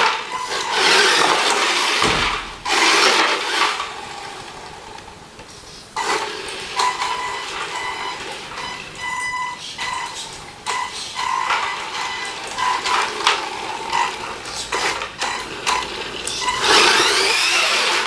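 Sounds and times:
toy truck motor whining: 0.0 - 2.0, 6.0 - 18.0.

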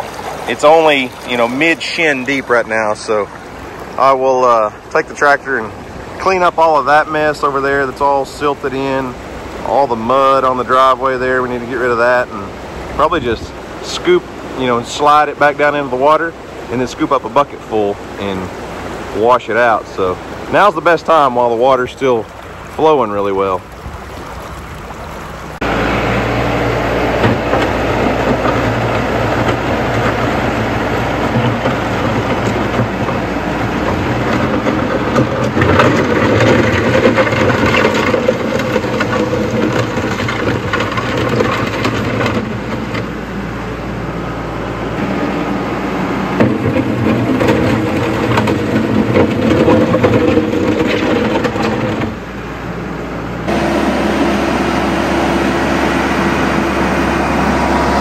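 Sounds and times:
tractor diesel engine running: 0.0 - 58.0
water rushing: 0.0 - 58.0.

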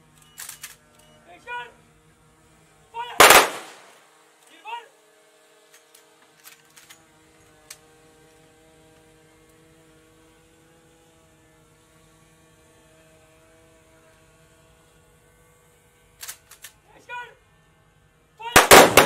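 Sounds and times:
faint steady hum of held tones: 0.0 - 2.9.

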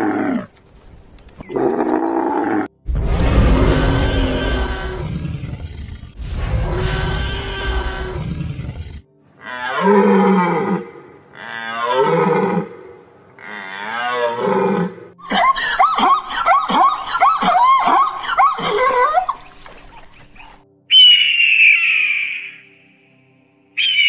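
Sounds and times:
dinosaur roar: 1.5 - 15.1.

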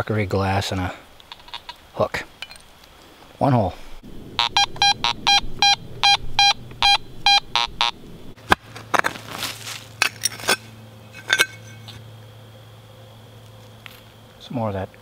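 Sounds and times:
metal detector beeping: 4.4 - 8.0
hand digger scraping soil: 8.8 - 10.7.

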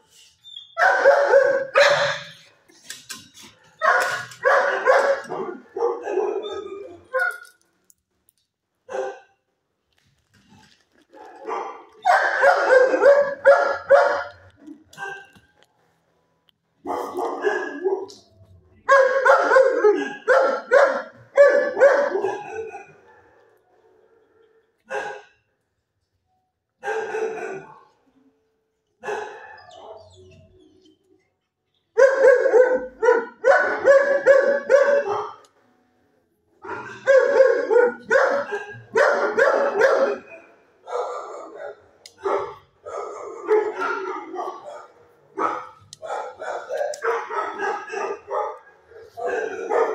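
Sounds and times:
dog barking: 0.8 - 2.4, 3.6 - 7.4, 8.9 - 9.4, 11.1 - 15.4, 16.8 - 18.3, 18.9 - 23.5, 24.9 - 25.4, 26.8 - 28.0, 29.0 - 30.3, 32.0 - 35.5, 36.6 - 49.9.

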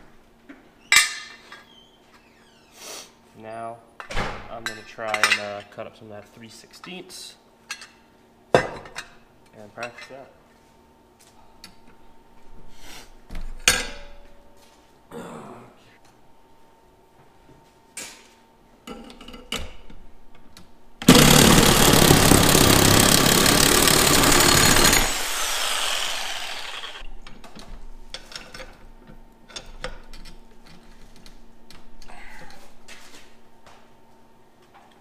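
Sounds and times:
reciprocating saw cutting steel: 21.1 - 27.0.

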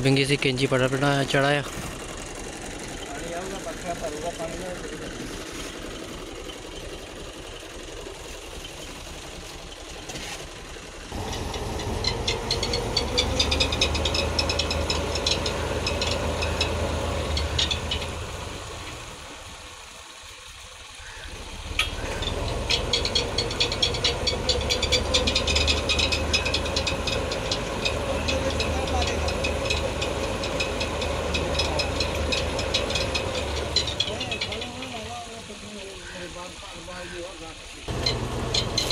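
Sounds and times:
tractor engine running: 0.0 - 38.9.

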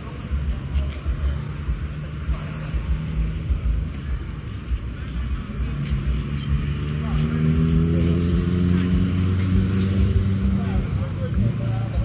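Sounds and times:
motor vehicle running: 0.0 - 12.0
street traffic rumble: 0.0 - 12.0.

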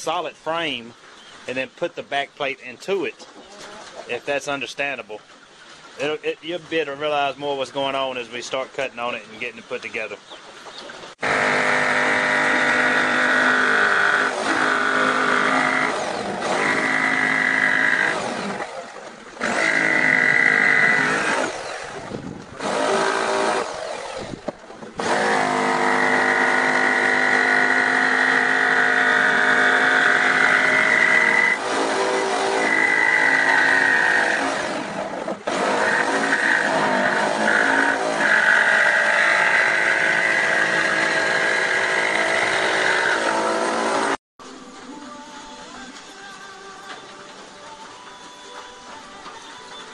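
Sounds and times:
power tool cutting wood: 11.2 - 44.2.

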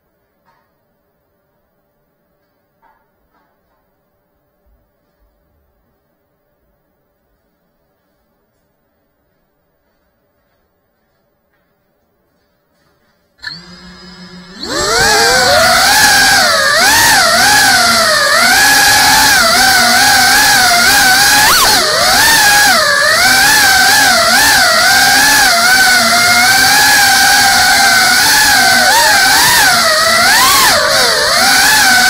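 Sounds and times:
drone motors whining: 13.4 - 32.0.

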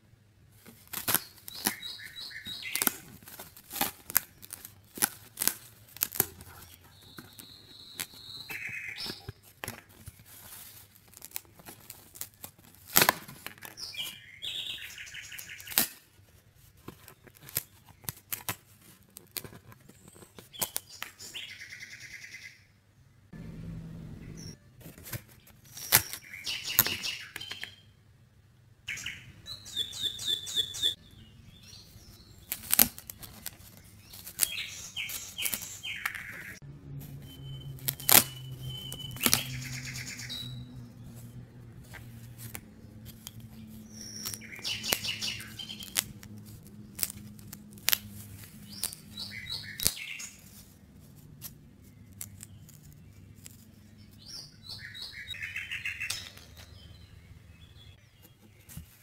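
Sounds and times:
cardboard pieces clicking and snapping: 0.6 - 1.9, 2.5 - 14.1, 15.4 - 16.0, 16.8 - 21.2, 32.4 - 36.5, 37.8 - 39.6, 41.9 - 50.7, 51.4 - 53.6
birds chirping: 1.1 - 3.7, 5.6 - 9.5, 13.6 - 15.8, 19.8 - 24.6, 25.4 - 28.0, 28.6 - 59.0.

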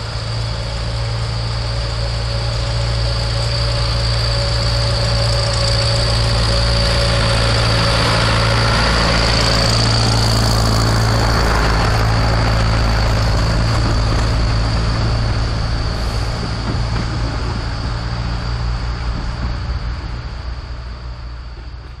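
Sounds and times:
diesel engine drone: 0.0 - 22.0
train carriages rolling on track: 0.0 - 22.0.

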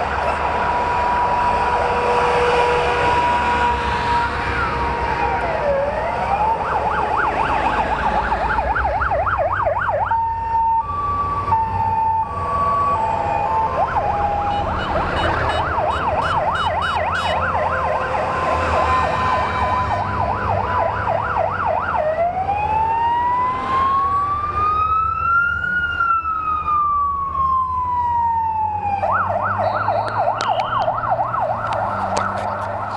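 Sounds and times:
armoured vehicles rumbling past: 0.0 - 32.9
emergency siren: 0.0 - 32.9.

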